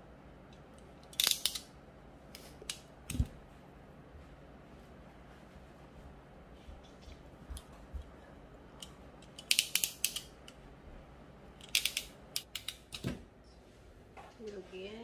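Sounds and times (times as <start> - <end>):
crimping pliers clicking: 0.5 - 1.7, 8.8 - 10.6, 11.6 - 13.1.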